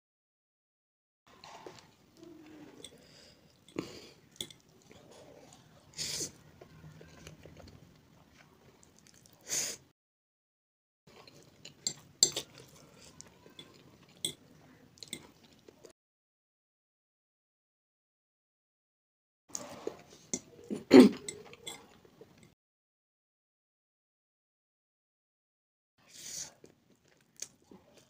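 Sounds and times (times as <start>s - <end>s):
chewing and mouth noises: 1.4s - 9.4s, 26.5s - 28.0s
metal fork clinking on plate: 21.2s - 22.0s.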